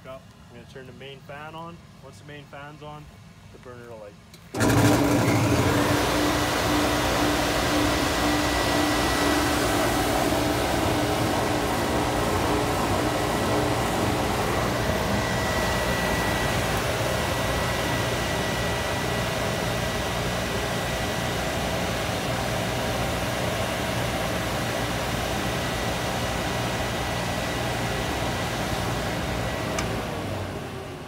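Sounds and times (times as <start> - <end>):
fan blowing air: 0.0 - 31.0
thin high whine: 6.5 - 20.6.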